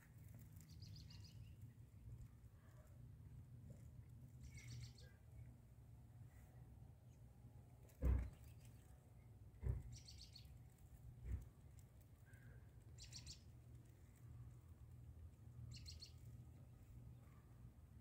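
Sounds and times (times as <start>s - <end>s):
bird chirping trills: 0.6s - 1.8s, 4.4s - 5.4s, 9.9s - 10.6s, 12.2s - 13.5s, 15.6s - 16.4s
soft low thump: 8.0s - 8.5s, 9.6s - 10.0s.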